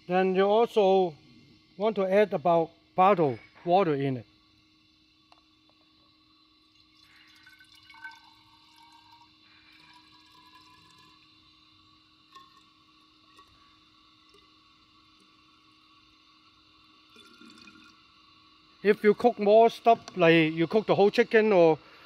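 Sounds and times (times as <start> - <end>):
water pouring into glass bottle: 6.7 - 11.3, 12.3 - 13.6, 14.2 - 15.3, 17.1 - 18.0.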